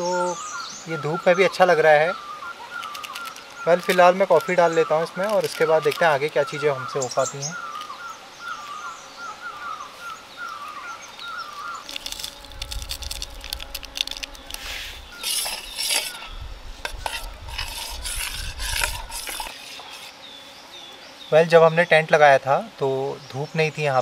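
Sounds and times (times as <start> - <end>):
bird chirping: 0.0 - 12.4, 14.0 - 22.1
wind rumbling on microphone: 12.3 - 19.4.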